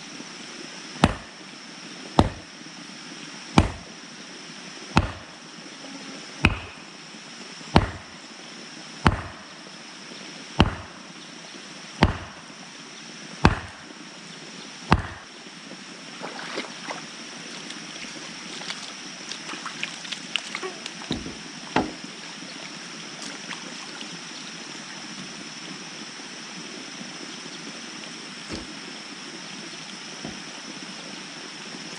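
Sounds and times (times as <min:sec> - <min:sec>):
running water: 0:00.0 - 0:31.9
dull knocks: 0:01.0 - 0:01.3, 0:02.2 - 0:02.4, 0:03.6 - 0:03.9, 0:05.0 - 0:05.3, 0:07.8 - 0:08.1, 0:10.6 - 0:11.0, 0:12.0 - 0:12.4, 0:13.4 - 0:13.8, 0:14.9 - 0:15.3, 0:21.0 - 0:22.1, 0:28.5 - 0:28.7, 0:30.2 - 0:30.5
mallet pounding stake: 0:01.0 - 0:01.3, 0:02.2 - 0:02.4, 0:03.6 - 0:03.9, 0:05.0 - 0:05.3, 0:06.4 - 0:06.8, 0:07.8 - 0:08.1, 0:09.0 - 0:09.4, 0:10.6 - 0:11.0, 0:12.0 - 0:12.4, 0:13.4 - 0:13.8, 0:14.9 - 0:15.3
wading through shallow water: 0:14.9 - 0:26.4.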